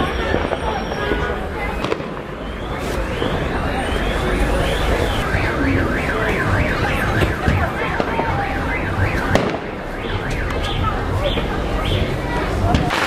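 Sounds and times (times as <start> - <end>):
fireworks crackling: 0.0 - 13.0
electronic alarm warbling: 2.5 - 12.0.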